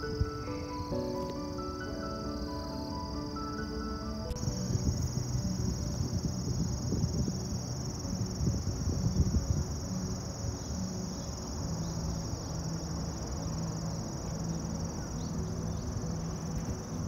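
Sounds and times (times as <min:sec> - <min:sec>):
insects shrilling: 0:00.0 - 0:17.0
low rumble: 0:04.1 - 0:17.0.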